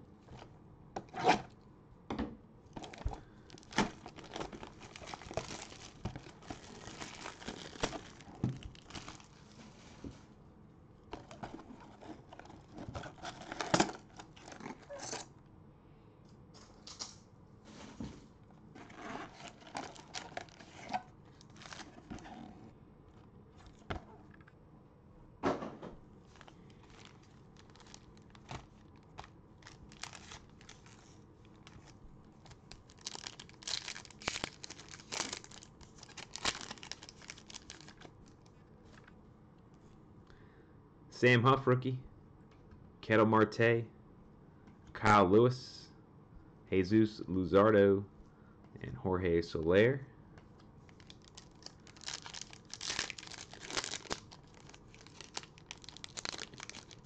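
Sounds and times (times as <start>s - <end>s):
wrappers tearing and crinkling: 2.8s - 9.6s, 18.8s - 22.4s, 26.3s - 38.4s, 50.9s - 57.0s.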